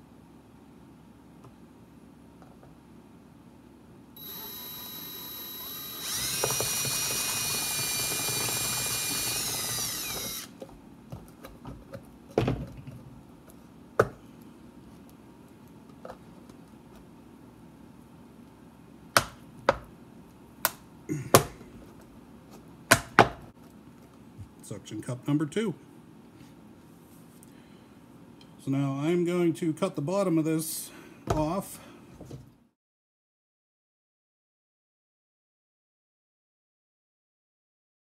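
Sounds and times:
drill motor whining: 0:04.2 - 0:10.6.

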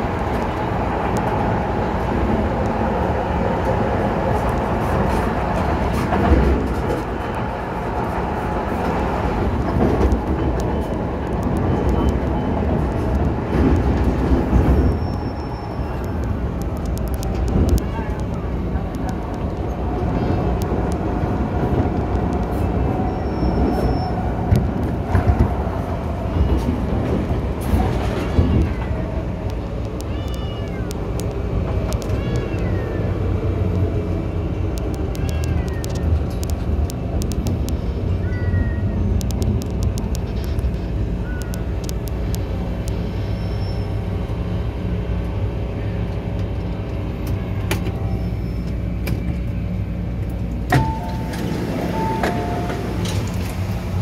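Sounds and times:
train motor and wheel-on-rail noise: 0:00.0 - 0:54.0
bursts of clicking: 0:34.7 - 0:37.8, 0:39.2 - 0:40.8.

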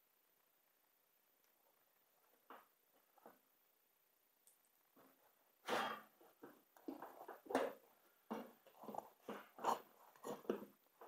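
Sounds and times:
rubber rubbing against metal rim: 0:08.8 - 0:10.7.

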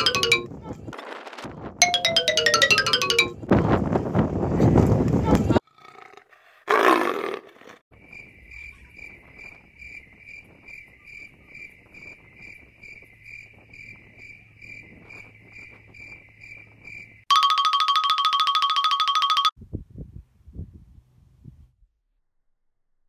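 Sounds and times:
electronic music with pulsing tone: 0:00.0 - 0:00.5
cricket chirping: 0:08.0 - 0:17.2.

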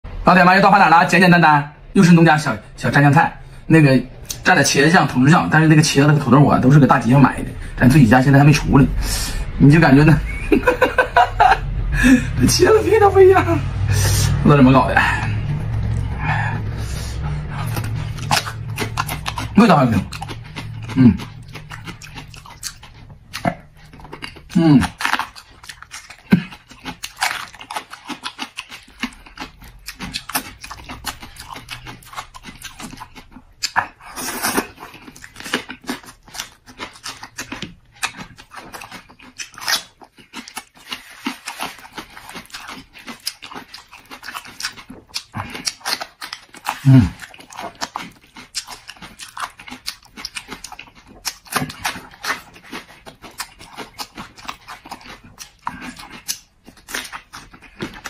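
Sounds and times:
man chewing and smacking: 0:15.2 - 0:58.0
man humming: 0:20.9 - 0:21.4, 0:46.9 - 0:47.2.

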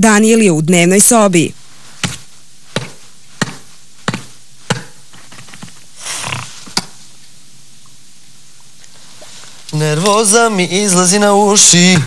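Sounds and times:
sharp taps: 0:02.8 - 0:05.7.

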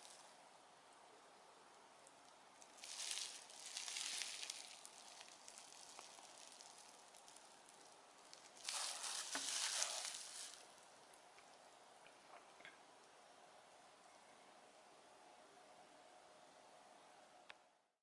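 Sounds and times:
bubble wrap crinkling: 0:02.2 - 0:11.3.

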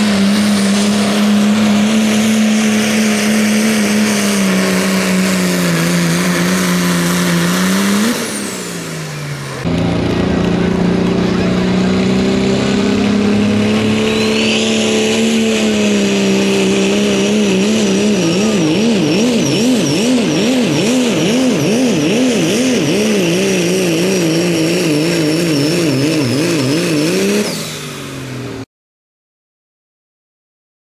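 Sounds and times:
diesel engine running flat out: 0:00.0 - 0:28.7
turbo whistle: 0:13.7 - 0:15.8.

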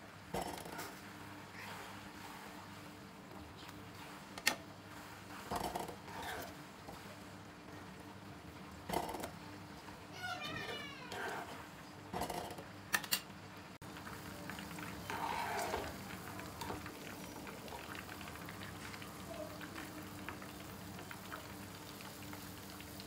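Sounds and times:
butter bubbling in a pan: 0:00.0 - 0:23.0
wooden spoon stirring: 0:13.9 - 0:19.0.

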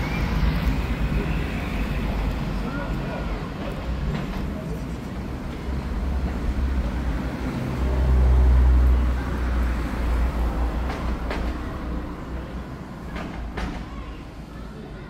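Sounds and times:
passing vehicle rumble: 0:00.0 - 0:13.6.

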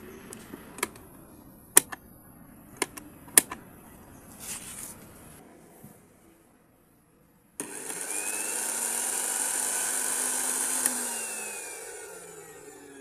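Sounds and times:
blender motor running: 0:07.6 - 0:13.0.

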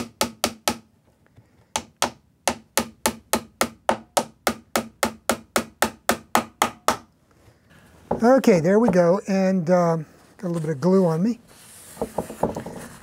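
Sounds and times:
small hammer tapping nails: 0:01.7 - 0:07.1.

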